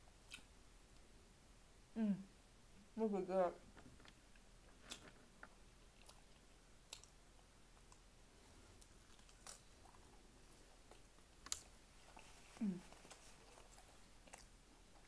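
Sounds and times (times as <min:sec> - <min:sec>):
chewing and eating clicks: 0:04.9 - 0:07.2.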